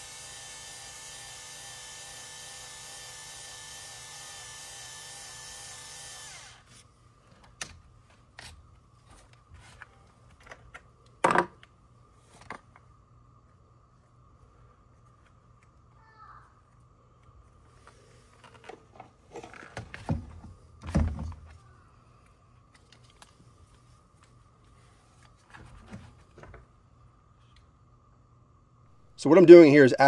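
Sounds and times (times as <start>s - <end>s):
flaring tool motor running: 0.0s - 6.8s.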